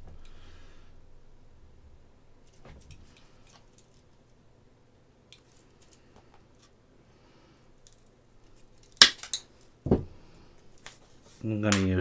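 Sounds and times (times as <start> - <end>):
wooden sticks rustling: 2.4 - 4.4, 5.3 - 6.8
dull thump on workbench: 9.8 - 10.1.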